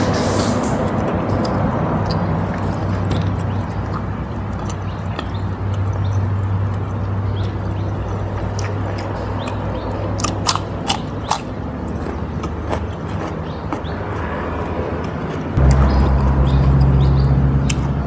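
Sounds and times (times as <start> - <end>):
wet chewing: 0.9 - 17.9
crunchy bites into vegetable: 10.2 - 13.9
steady low hum: 14.7 - 18.0.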